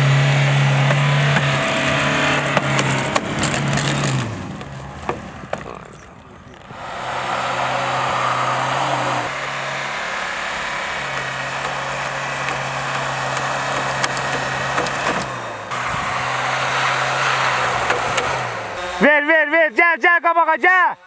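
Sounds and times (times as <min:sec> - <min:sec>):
truck engine running: 0:00.0 - 0:19.7
tyres hissing through snow: 0:06.7 - 0:18.8.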